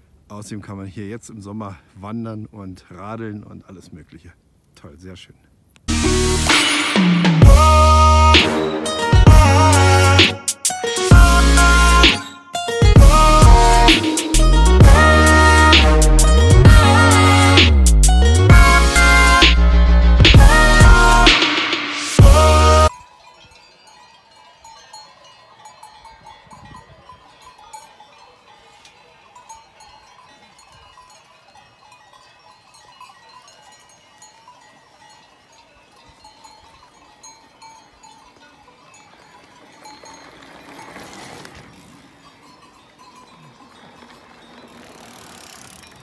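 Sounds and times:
bicycle tyres on dirt: 22.2s - 46.0s
distant cowbells clinking: 22.4s - 46.0s.

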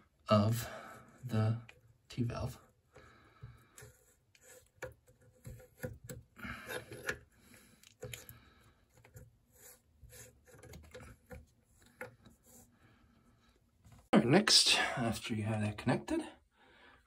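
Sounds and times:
plastic nut scraping on metal: 3.7s - 12.6s.

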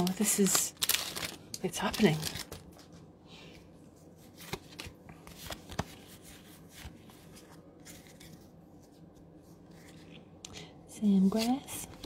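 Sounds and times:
trading cards rustling: 0.1s - 3.0s, 4.0s - 10.4s.

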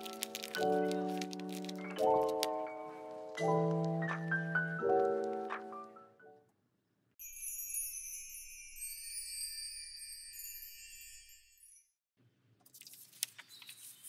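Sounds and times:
shimmering sparkle sound effect: 7.2s - 11.9s
glockenspiel jingle: 7.2s - 12.0s.

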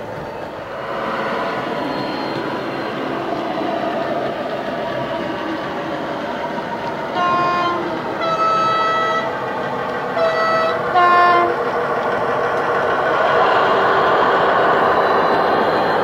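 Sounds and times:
diesel locomotive engine running: 0.0s - 16.0s
two-tone locomotive horn: 7.0s - 9.4s, 10.1s - 11.7s.

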